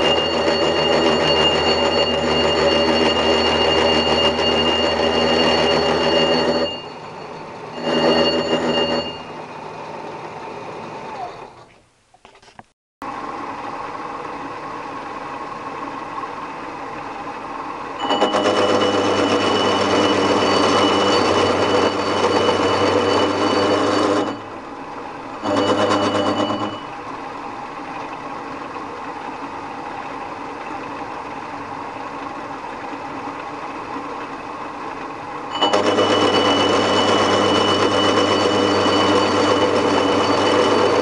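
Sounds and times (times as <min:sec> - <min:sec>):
milling machine cutting metal: 0:00.0 - 0:09.5, 0:18.0 - 0:27.1, 0:35.5 - 0:41.0
machine winding down: 0:00.0 - 0:11.6, 0:13.1 - 0:34.4, 0:35.5 - 0:41.0.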